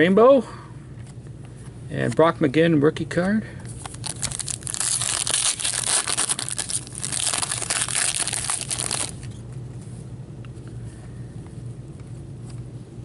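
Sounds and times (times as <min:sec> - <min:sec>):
plastic wrapper crinkling: 0:03.8 - 0:09.3.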